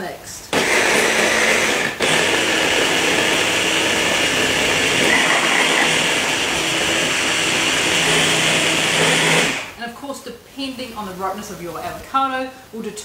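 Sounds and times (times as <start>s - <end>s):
food processor motor running: 0.5s - 9.8s.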